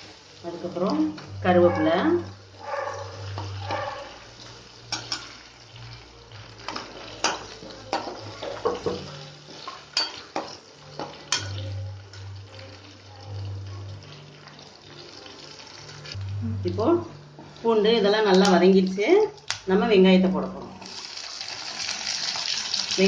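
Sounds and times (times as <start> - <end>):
faint oil sizzle: 0.0 - 19.6, 20.5 - 23.0.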